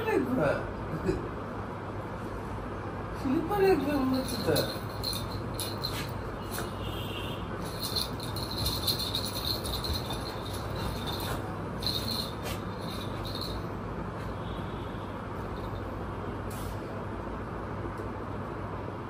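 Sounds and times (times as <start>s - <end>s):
steady low hum: 0.0s - 19.0s
chain collar jingling: 3.8s - 6.8s, 7.6s - 13.8s.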